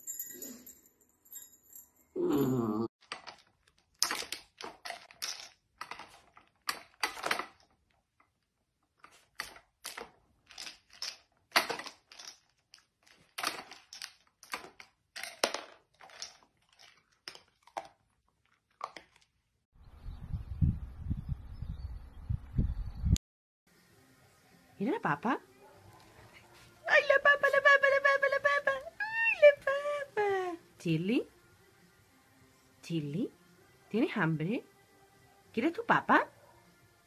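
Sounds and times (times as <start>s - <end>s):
plastic toy clacking and rattling: 3.0s - 8.0s, 9.0s - 19.3s.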